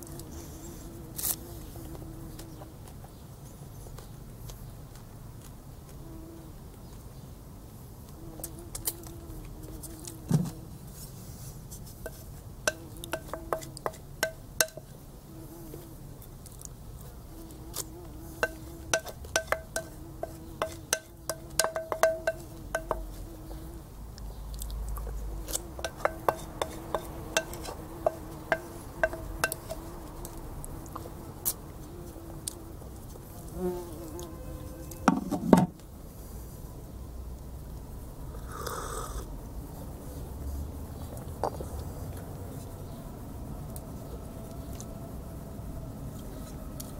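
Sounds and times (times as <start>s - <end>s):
insect buzzing: 0.0s - 2.7s, 8.2s - 10.8s, 12.7s - 16.0s, 17.1s - 24.0s, 25.3s - 35.4s, 38.2s - 39.7s
spoon scraping ceramic bowl: 12.0s - 14.8s, 18.4s - 23.2s, 25.5s - 29.9s.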